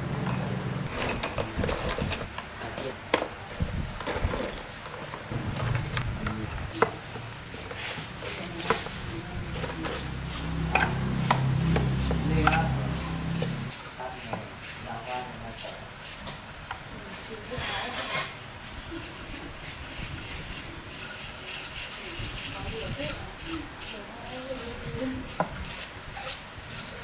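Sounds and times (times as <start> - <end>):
knocks and scraping on engine parts: 0.1 - 14.6
low hum: 5.3 - 7.4, 8.8 - 13.7.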